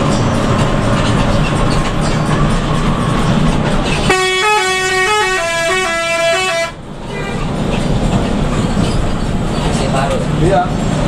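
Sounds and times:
bus engine rumble: 0:00.0 - 0:11.0
bus musical horn tune: 0:04.1 - 0:07.5.

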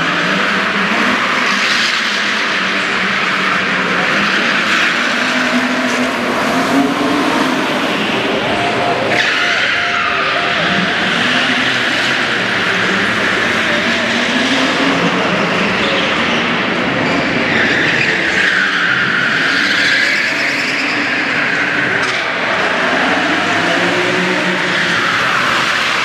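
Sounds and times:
car engines revving: 0:00.0 - 0:26.0.

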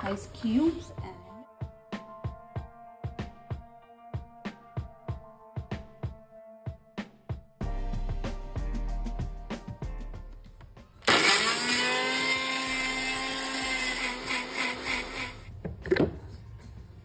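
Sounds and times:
mixer grinder motor whining: 0:11.0 - 0:15.5.

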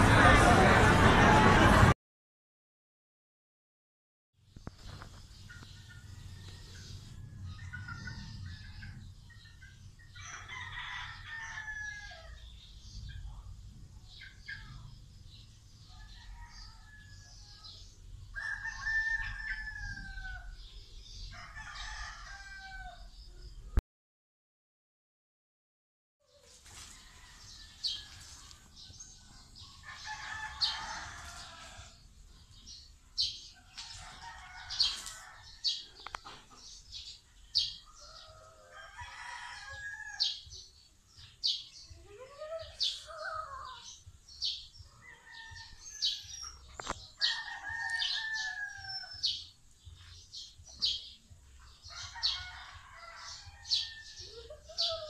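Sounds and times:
roosters crowing: 0:05.8 - 0:12.6, 0:15.3 - 0:23.2, 0:26.4 - 0:41.6, 0:42.2 - 0:55.0.

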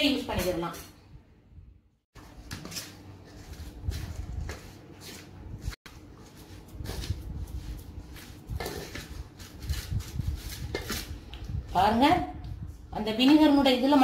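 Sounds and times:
spoon scraping metal bowl: 0:08.2 - 0:11.2.

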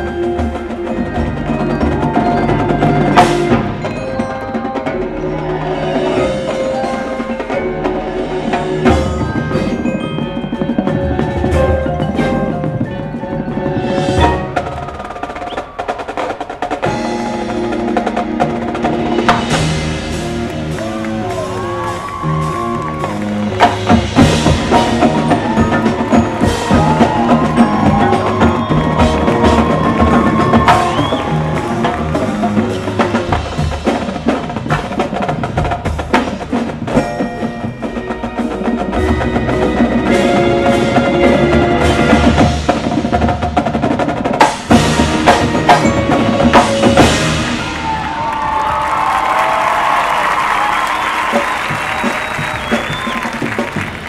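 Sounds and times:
marimbas and vibraphones: 0:00.0 - 0:15.3, 0:23.5 - 0:43.4, 0:44.6 - 0:47.8
drum rolls: 0:00.0 - 0:54.0.

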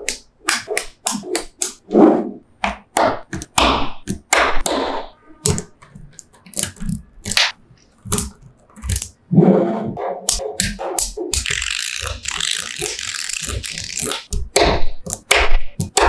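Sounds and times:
magnetic balls clicking together: 0:10.6 - 0:16.0.

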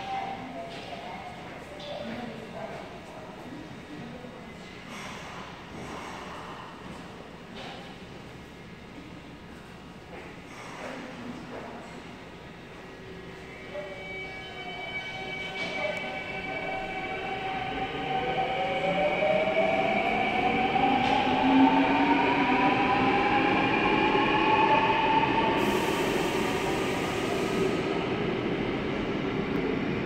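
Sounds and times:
train hiss: 0:25.5 - 0:28.1.

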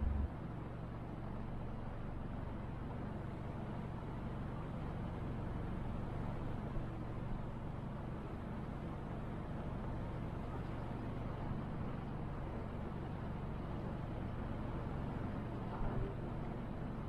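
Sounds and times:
motorboat engine drone: 0:00.0 - 0:17.0.

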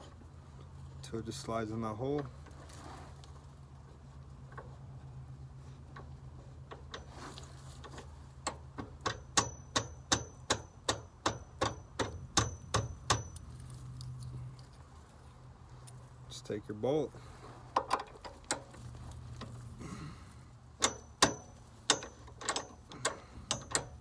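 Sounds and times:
wrench metallic clicks: 0:20.8 - 0:24.0.

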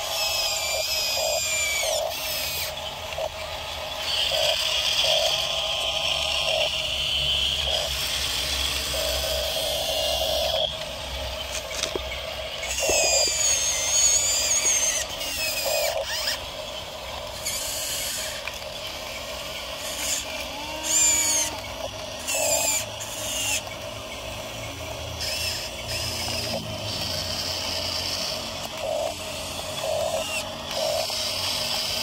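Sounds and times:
toy electric motors whining: 0:00.0 - 0:32.0.

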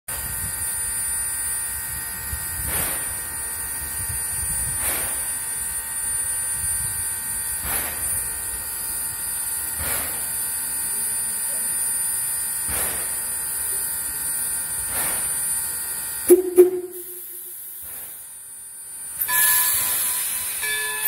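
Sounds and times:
steam locomotive whine and hiss: 0:00.1 - 0:16.4, 0:17.3 - 0:21.0
steam puffs: 0:02.6 - 0:03.3, 0:04.7 - 0:05.5, 0:07.6 - 0:08.4, 0:09.8 - 0:10.4, 0:12.7 - 0:13.8, 0:14.8 - 0:15.4.

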